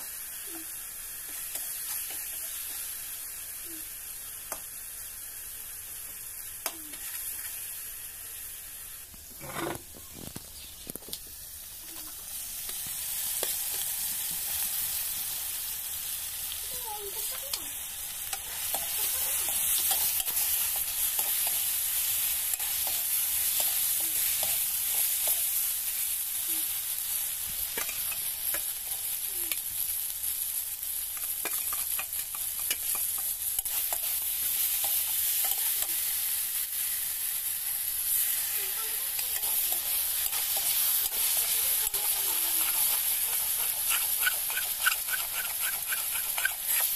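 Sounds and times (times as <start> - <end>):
food sizzling in oil: 0.0 - 46.9
metal spatula scraping pan: 9.4 - 10.0, 39.4 - 46.9.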